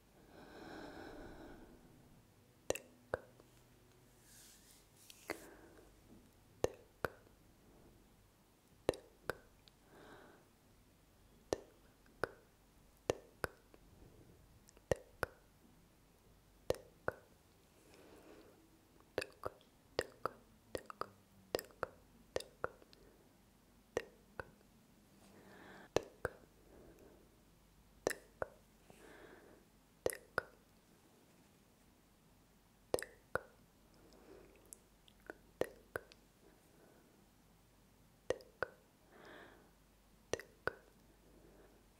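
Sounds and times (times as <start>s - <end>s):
tongue clicks: 2.6s - 3.4s, 6.6s - 7.3s, 8.8s - 9.8s, 11.5s - 12.5s, 16.7s - 17.3s, 19.0s - 23.0s, 23.9s - 24.6s, 25.9s - 26.5s, 28.0s - 28.6s, 30.0s - 30.6s, 32.9s - 33.6s, 34.5s - 36.2s, 38.3s - 38.8s, 40.3s - 41.0s.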